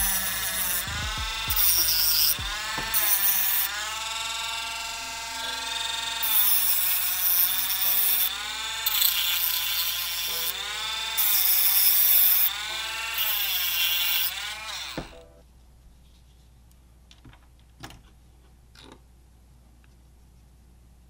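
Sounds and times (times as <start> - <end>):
harsh grinding of metal tube: 0.0 - 4.5
rotary tool whine: 0.0 - 15.2.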